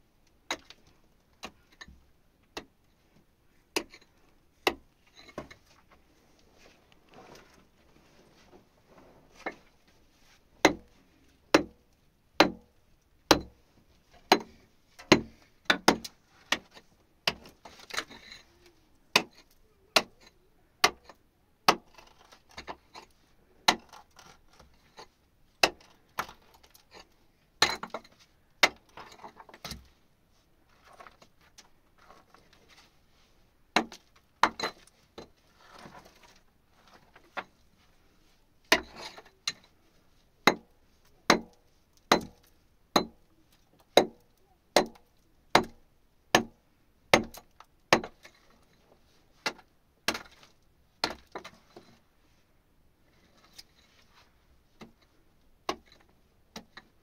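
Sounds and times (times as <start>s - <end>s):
soft scraping: 5.0s - 11.2s.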